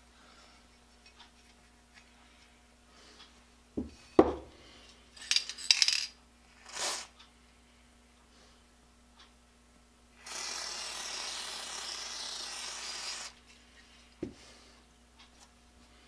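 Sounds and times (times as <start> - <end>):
metal parts clinking and rattling: 5.2 - 6.2
aerosol spray hiss: 10.2 - 13.4.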